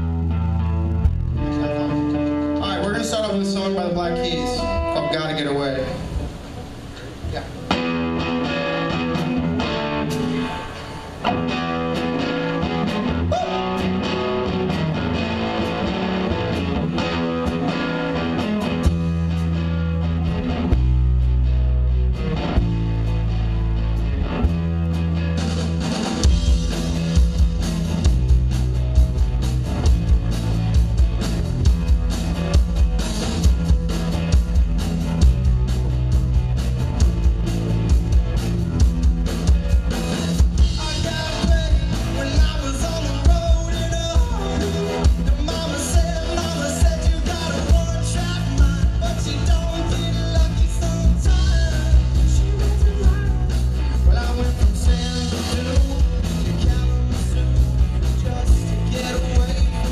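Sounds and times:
bass guitar: 0:00.0 - 0:59.9
electric guitar chords: 0:00.0 - 0:59.9
drums steady beat: 0:24.4 - 0:59.9.

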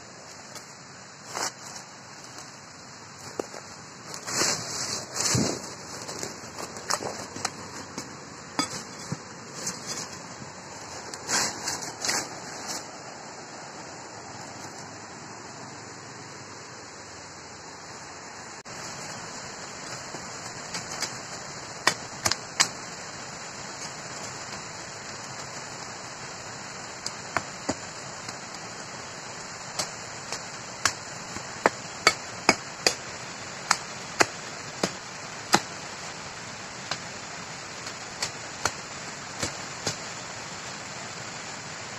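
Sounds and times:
steady high hiss: 0:00.0 - 0:41.9
dry leaves crackling: 0:00.2 - 0:15.0
knife chopping bamboo: 0:29.7 - 0:35.8.

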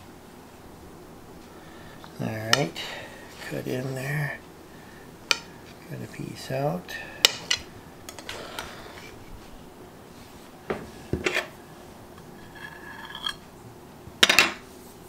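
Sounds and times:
cutlery scraping ceramic plates: 0:11.2 - 0:11.5, 0:12.2 - 0:13.4.

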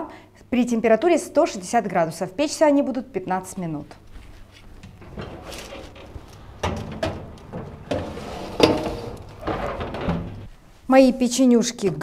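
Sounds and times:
metal tray scraping and clanking: 0:04.9 - 0:10.5
oven door swinging shut: 0:04.9 - 0:10.5.

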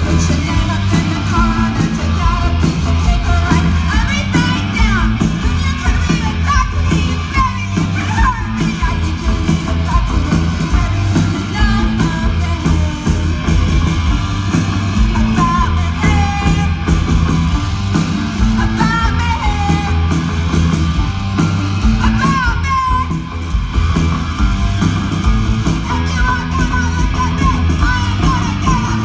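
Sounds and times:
woman singing: 0:00.0 - 0:13.4, 0:15.0 - 0:16.9, 0:18.6 - 0:20.1
punk rock band playing: 0:00.0 - 0:29.0.

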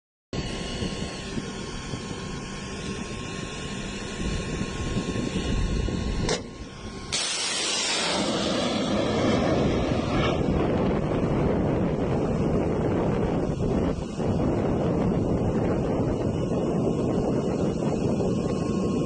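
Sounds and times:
rocket motor hissing: 0:00.4 - 0:19.0
low rumble: 0:03.0 - 0:19.0.

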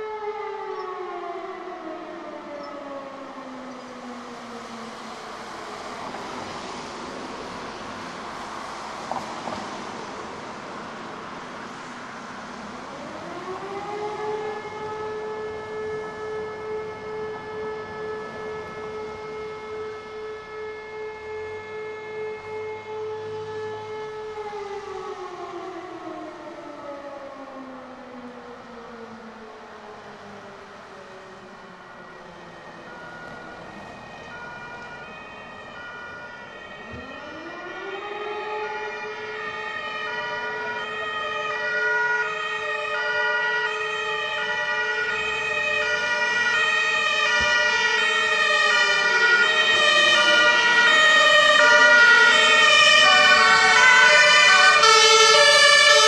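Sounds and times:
street noise: 0:00.0 - 0:56.0
wind: 0:00.0 - 0:56.0
electromechanical siren winding down: 0:13.0 - 0:28.2, 0:32.0 - 0:56.0.

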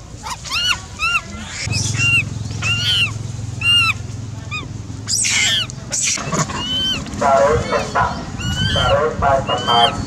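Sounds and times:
steady low hum: 0:00.0 - 0:10.0
monkey squealing calls: 0:00.2 - 0:10.0.

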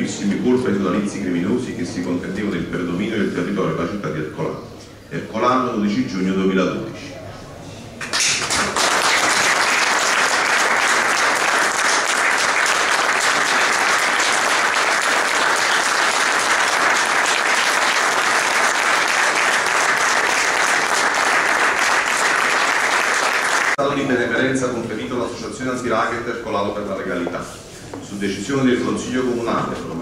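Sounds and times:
audience applauding: 0:08.0 - 0:23.8.

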